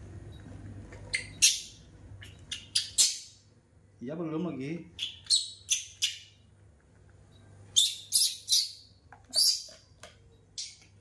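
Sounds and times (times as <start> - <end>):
baby monkey squealing cries: 7.8 - 9.6.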